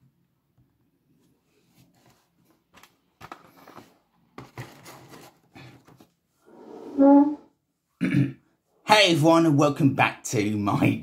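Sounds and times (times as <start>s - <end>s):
handling rustles and knocks: 1.2s - 6.2s.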